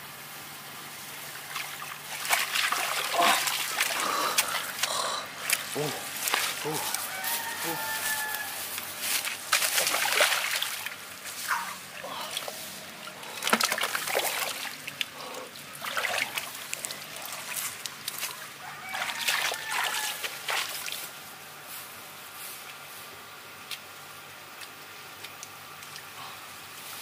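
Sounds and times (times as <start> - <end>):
hands splashing in muddy water: 1.5 - 7.2, 9.2 - 11.0, 13.3 - 15.2, 15.8 - 21.0.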